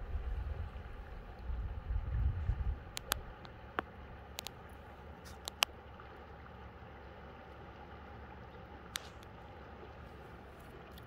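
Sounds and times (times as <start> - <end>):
river water lapping around rocks: 0.0 - 11.0
small sharp water plinks: 2.9 - 7.7, 8.4 - 11.0.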